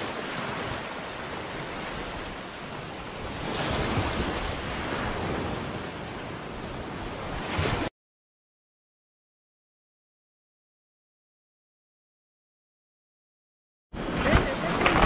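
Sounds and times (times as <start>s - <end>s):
small waves washing on shore: 0.0s - 7.9s, 14.0s - 15.0s.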